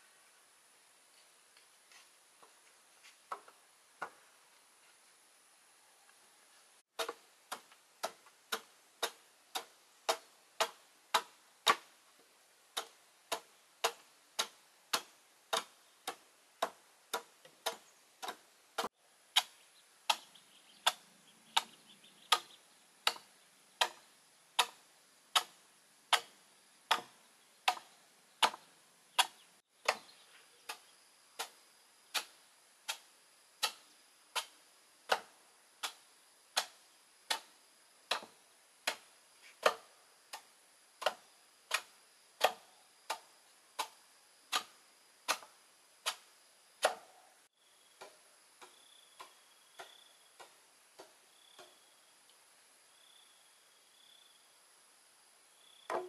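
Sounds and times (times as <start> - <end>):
adze chopping wood: 7.0 - 12.0, 12.8 - 36.0, 36.6 - 47.2, 48.0 - 51.7.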